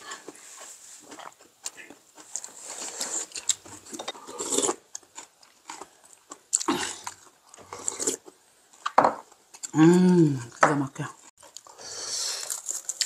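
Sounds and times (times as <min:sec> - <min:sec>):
slurping and chewing: 0:00.0 - 0:10.1, 0:11.4 - 0:13.0.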